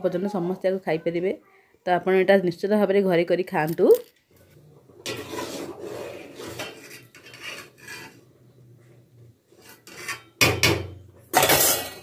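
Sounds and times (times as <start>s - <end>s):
utensils scraping and clattering: 3.8s - 8.4s, 9.5s - 12.0s
kitchen items rasping and rubbing: 3.8s - 10.4s.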